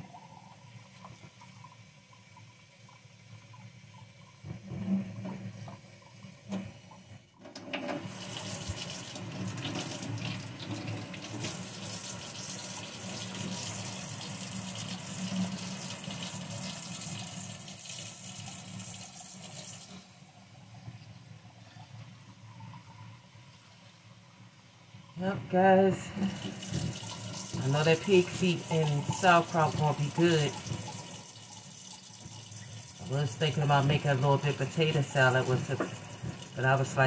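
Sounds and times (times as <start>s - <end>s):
kitchen faucet running: 0.0s - 20.4s, 25.3s - 37.0s
water stream on steel sink: 0.0s - 20.6s, 25.7s - 37.0s
rice rinsed by hand in water: 7.8s - 20.1s, 26.0s - 37.0s.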